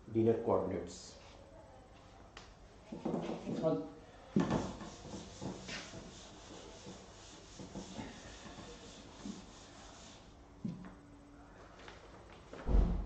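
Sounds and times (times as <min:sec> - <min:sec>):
duster rubbing on blackboard: 0:04.4 - 0:10.8.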